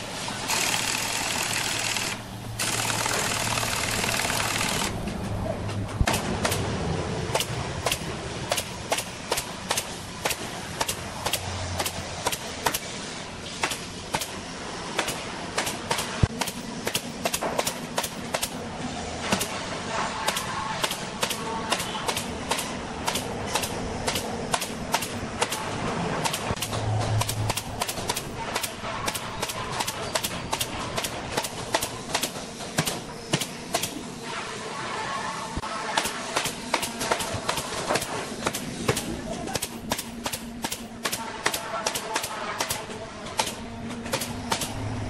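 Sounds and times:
nail gun firing into wood: 0:15.0 - 0:18.6, 0:20.3 - 0:25.6, 0:26.2 - 0:34.0, 0:36.0 - 0:42.8, 0:43.4 - 0:44.8.

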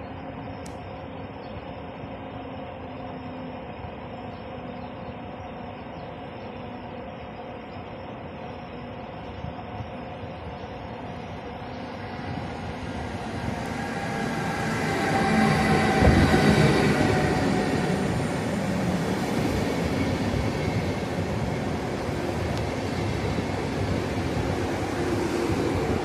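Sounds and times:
train passing: 0:00.0 - 0:26.0
train wheels rumbling: 0:07.2 - 0:26.0.

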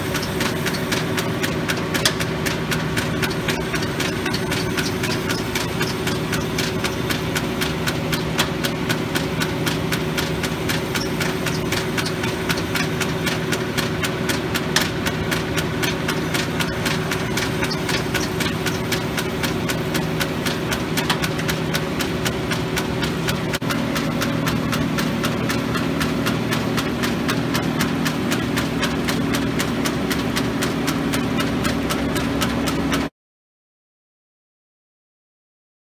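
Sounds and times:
grinder machine hum: 0:00.0 - 0:33.1
rapid ticks: 0:00.1 - 0:33.0.

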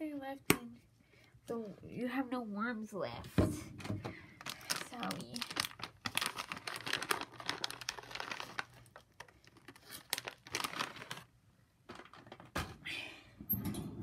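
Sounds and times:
plastic packaging crinkling: 0:04.3 - 0:12.4.

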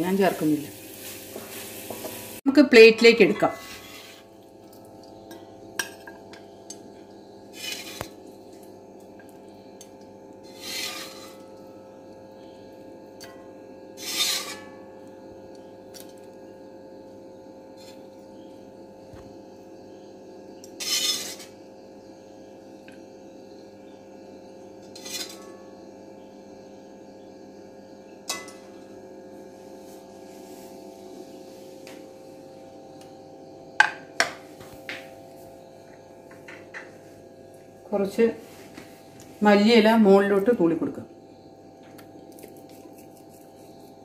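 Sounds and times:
faint steady hum: 0:00.0 - 0:44.0
metal spatula scraping a pan: 0:03.3 - 0:04.3, 0:07.5 - 0:08.2, 0:10.4 - 0:11.5, 0:14.0 - 0:14.8, 0:20.8 - 0:21.5, 0:25.0 - 0:25.4.

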